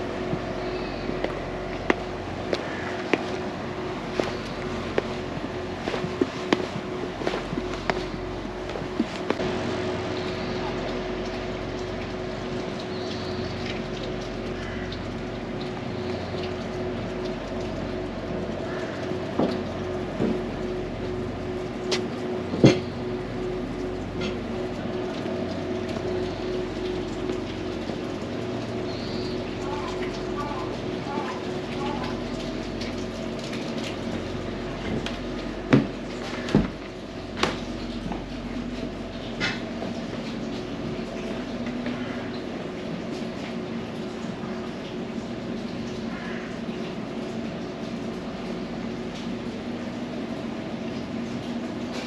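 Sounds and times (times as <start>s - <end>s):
low mechanical hum: 0.0s - 52.0s
steady ambient background: 0.0s - 52.0s
footsteps on wooden steps: 1.1s - 9.4s.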